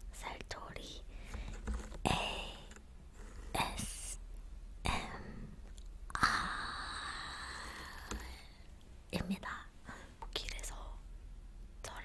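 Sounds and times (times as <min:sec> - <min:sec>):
woman whispering: 0:00.1 - 0:01.1, 0:02.1 - 0:02.7, 0:03.6 - 0:04.2, 0:04.8 - 0:05.5, 0:06.4 - 0:11.1.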